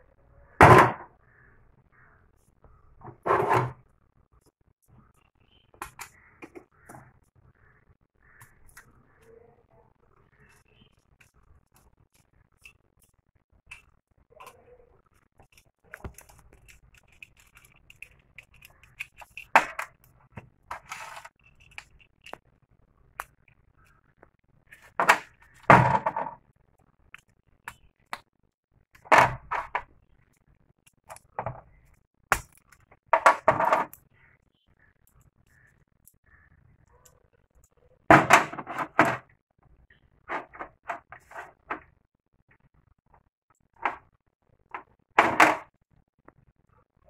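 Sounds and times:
clicks and scrapes of plastic: 10.2 - 22.5, 40.2 - 42.0
parts rattling: 15.4 - 22.4.

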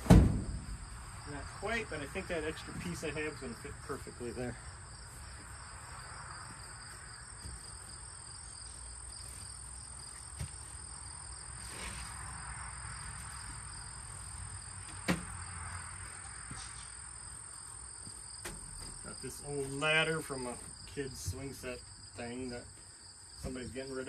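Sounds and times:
sharp knock: 0.0 - 0.7
crickets chirping: 0.0 - 24.0.

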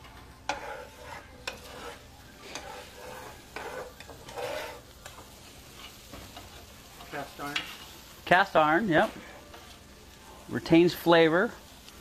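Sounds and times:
utensil scraping a pan: 0.0 - 9.8
butter sizzling in a pan: 0.0 - 12.0
utensil clicking on a pan: 0.1 - 7.9.

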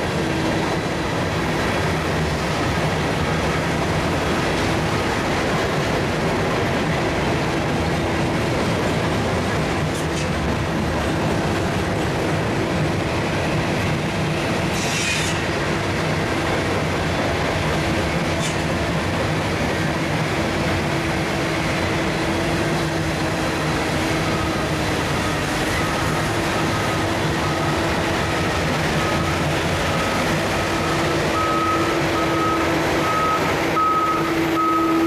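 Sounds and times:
train cars rumbling and clattering: 0.0 - 35.0
train wheel screech: 14.4 - 15.6, 18.2 - 18.8
reversing alarm beeping: 23.7 - 35.0.

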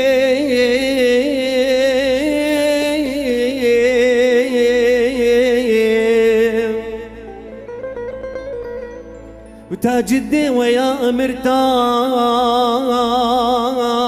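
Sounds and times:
plucked oud notes: 0.0 - 14.0.

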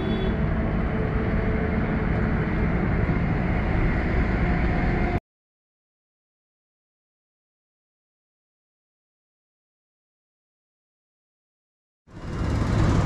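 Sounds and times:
road traffic: 0.0 - 5.2, 12.1 - 13.0.

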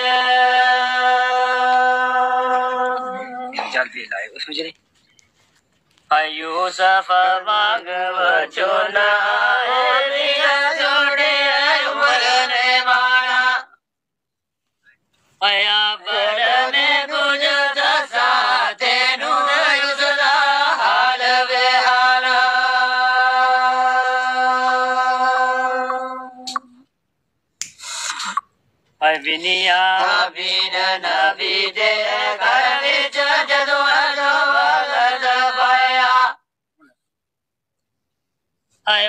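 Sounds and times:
man singing unaccompanied: 6.1 - 13.2, 15.4 - 26.5, 29.0 - 36.0.

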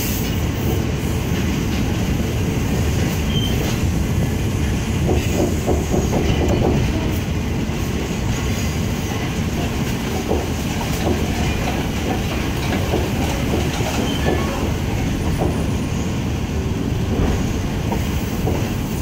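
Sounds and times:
train wheels rumbling on track: 0.0 - 19.0
wheels clacking over rail joints: 1.2 - 7.3, 9.0 - 15.8
faint wheel squeal: 3.3 - 3.7.

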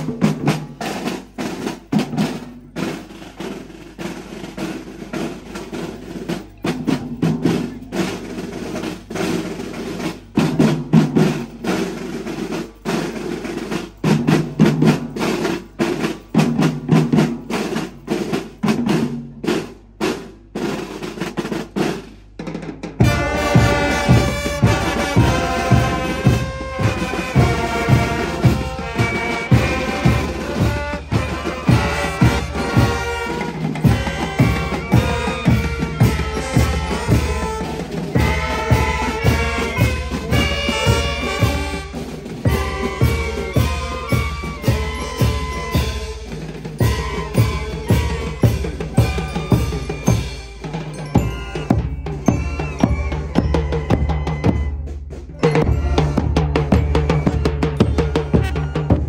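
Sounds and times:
snare and bass drums cadence: 0.0 - 59.0
brass and saxophones playing: 23.0 - 59.0.

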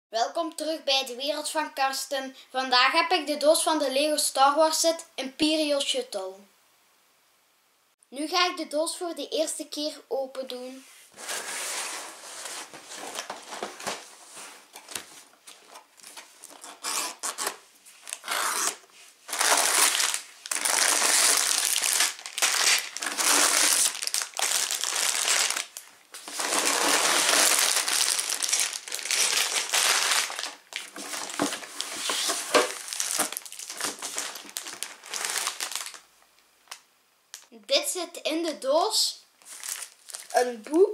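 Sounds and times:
cardboard box rustling: 11.2 - 17.4, 26.2 - 35.9
plastic bags crinkling: 11.2 - 37.5, 39.4 - 40.5.

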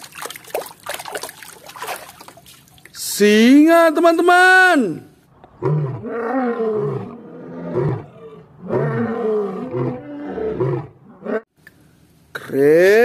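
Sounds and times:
lion roaring and grunting: 5.4 - 11.5.

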